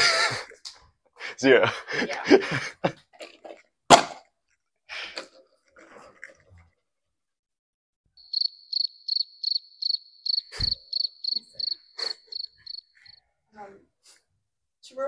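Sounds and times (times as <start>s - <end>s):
cricket chirping: 8.2s - 13.2s.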